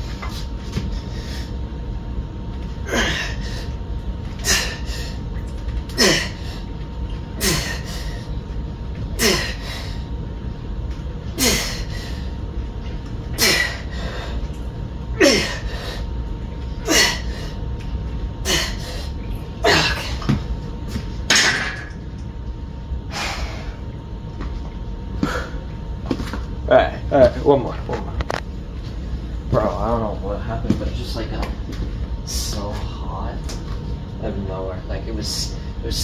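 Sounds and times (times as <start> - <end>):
man grunting with effortful exhales: 2.8 - 3.6, 5.9 - 6.6, 7.4 - 8.1, 9.2 - 9.8, 11.4 - 12.0, 15.2 - 16.0, 19.6 - 20.2.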